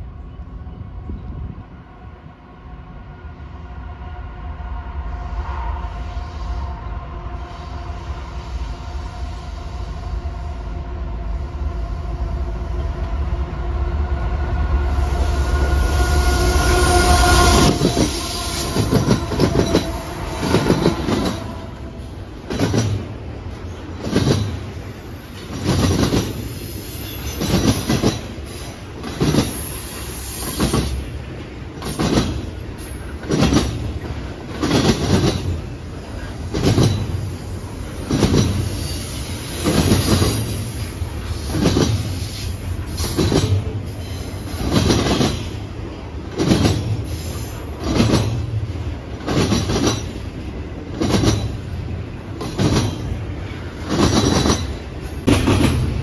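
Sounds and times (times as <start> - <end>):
diesel locomotive engines: 0.0 - 56.0
wheels clacking over rail joints: 44.5 - 56.0.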